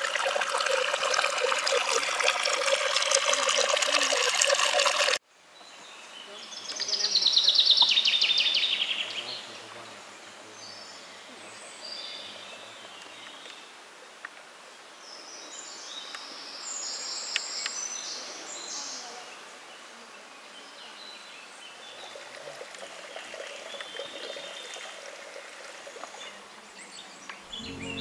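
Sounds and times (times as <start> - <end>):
birds singing: 5.6 - 13.7, 25.8 - 28.0.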